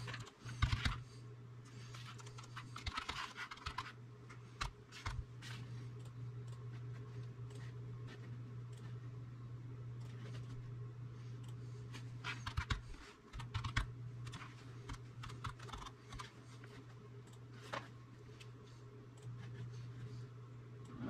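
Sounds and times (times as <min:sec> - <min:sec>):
steady low hum: 0:00.0 - 0:21.0
keyboard and mouse clicking: 0:00.1 - 0:01.0, 0:02.1 - 0:03.9, 0:12.3 - 0:16.3.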